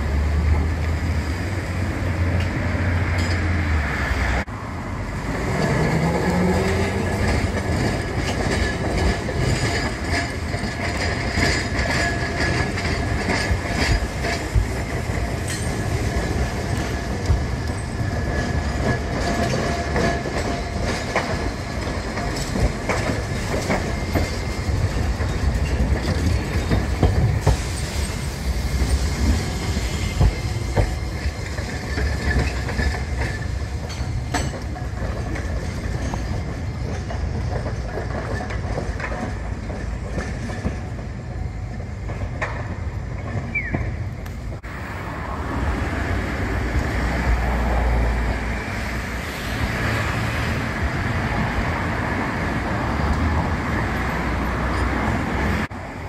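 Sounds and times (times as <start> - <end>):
low tram rumble: 0.0 - 56.0
tram wheels clacking over rail joints: 0.0 - 56.0
high wheel squeal: 23.4 - 34.6.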